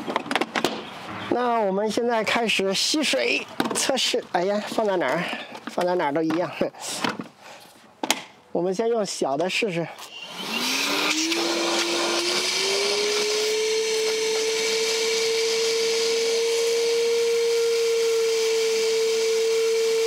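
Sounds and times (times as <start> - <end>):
vacuum motor spinning up: 10.1 - 20.0.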